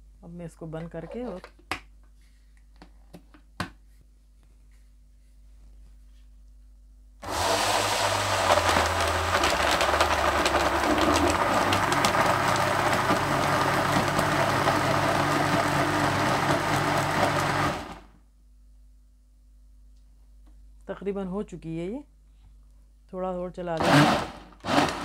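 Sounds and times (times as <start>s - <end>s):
blender motor whirring: 7.2s - 18.1s, 23.8s - 25.0s.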